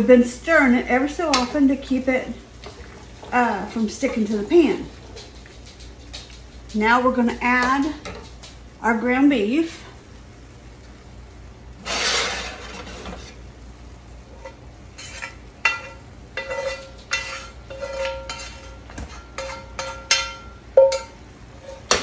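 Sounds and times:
rushing scrape: 11.8s - 13.4s
spoon knocking on skillet: 14.4s - 22.0s.

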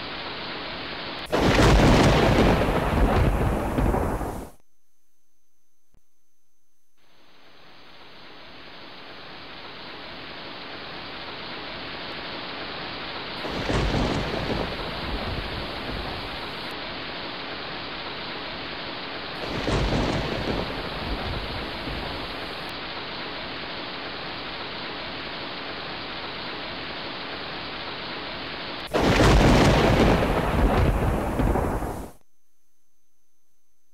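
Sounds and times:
wind blowing across microphone: 28.9s - 32.2s.

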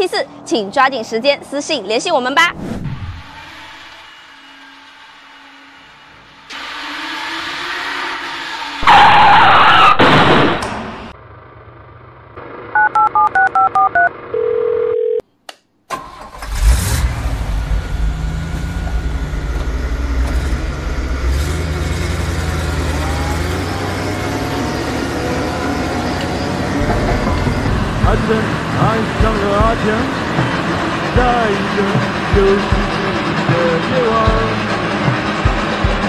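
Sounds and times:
telephone keypad touch-tones: 12.8s - 15.2s
truck engine running: 16.9s - 36.0s
loud noisy burst: 22.4s - 33.8s.

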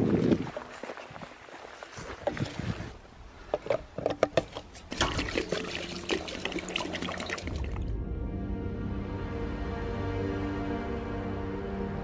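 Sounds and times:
fuel pouring through metal funnel: 4.9s - 7.8s.

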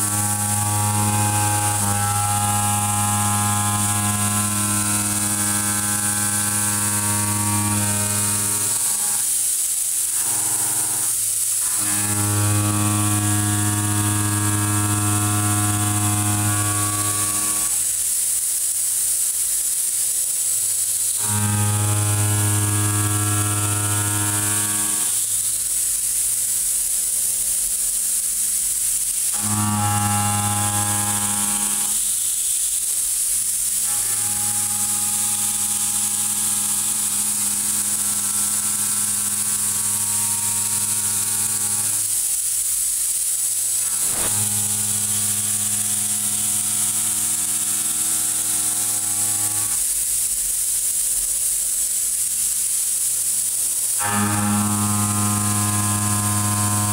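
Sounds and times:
milling cutter drone: 0.0s - 17.9s, 21.1s - 25.6s, 29.3s - 32.5s, 33.4s - 42.4s, 43.5s - 49.9s, 53.8s - 56.9s
constant high hiss: 0.0s - 56.9s.

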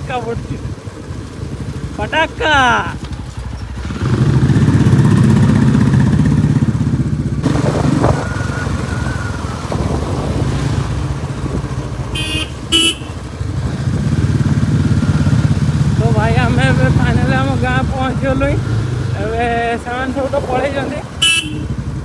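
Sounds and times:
motorcycle engine running: 0.0s - 22.0s
short horn beeps: 12.2s - 13.2s, 21.2s - 21.7s.

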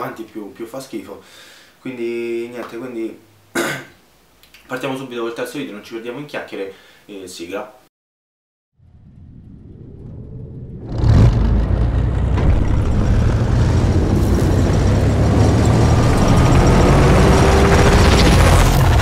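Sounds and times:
low rumble: 8.8s - 19.0s
heavy mechanical rumble of gears: 9.4s - 19.0s.

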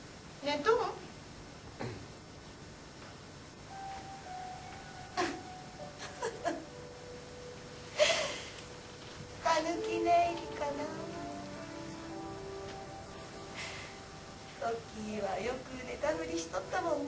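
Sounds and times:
soft music with held notes: 3.6s - 17.0s
woman sobbing: 5.1s - 6.7s, 7.9s - 8.6s.

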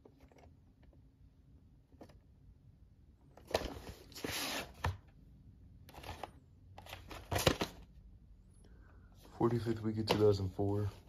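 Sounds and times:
cardboard and plastic scraping: 3.3s - 5.1s, 5.9s - 7.8s.

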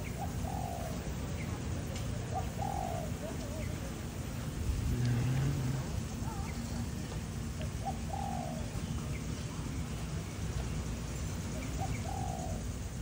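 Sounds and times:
bird calling: 0.0s - 4.2s, 6.1s - 10.5s, 11.3s - 13.0s.

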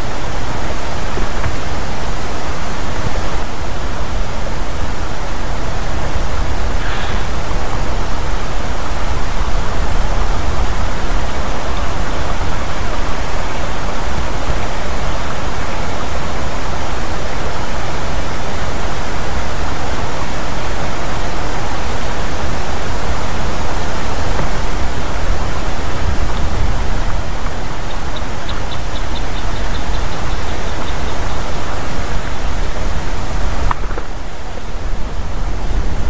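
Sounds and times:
wind noise on microphone: 0.0s - 36.0s.

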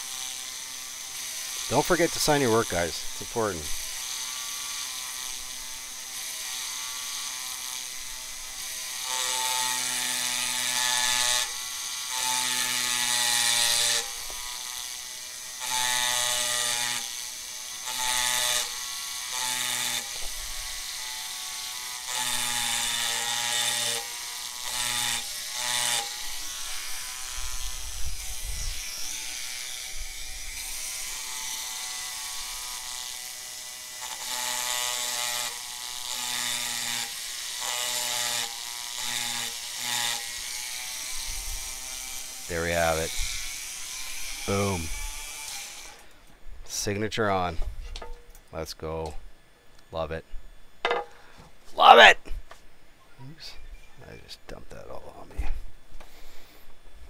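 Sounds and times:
rotary tool engraving glass: 0.0s - 46.0s.

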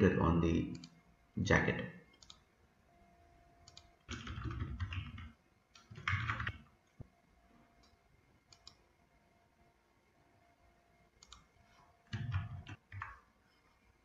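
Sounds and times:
mouse clicks: 2.2s - 2.4s, 3.6s - 3.9s, 7.8s - 8.8s, 11.2s - 11.5s
typing on computer keyboard: 3.7s - 6.6s, 12.1s - 13.3s.

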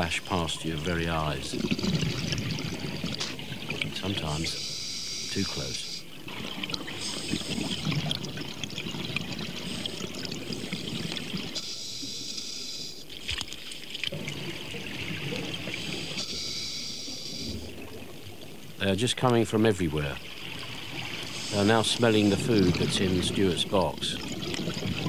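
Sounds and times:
exhaled bubbles gurgling: 0.0s - 11.6s, 13.0s - 16.6s, 17.2s - 25.0s
regulator hiss on inhalation: 4.5s - 6.0s, 6.9s - 8.0s, 15.8s - 17.5s, 21.2s - 22.0s.

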